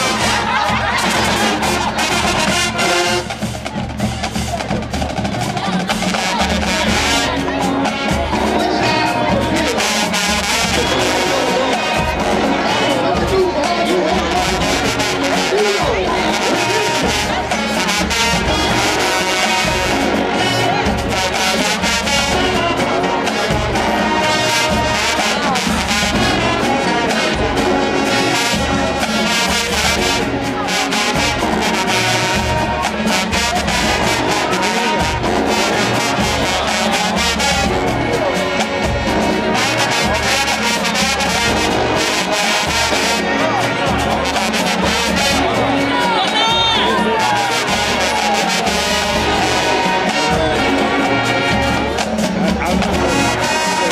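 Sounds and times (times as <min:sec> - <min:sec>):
drumline steady beat: 0:00.0 - 0:53.9
marching band brass section: 0:00.0 - 0:53.9.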